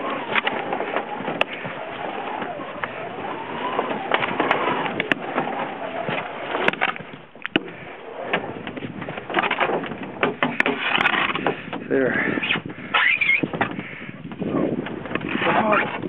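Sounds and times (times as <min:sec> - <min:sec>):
canoe hull scraping on ice: 0:00.0 - 0:16.0
sharp clicks and knocks: 0:03.7 - 0:11.9.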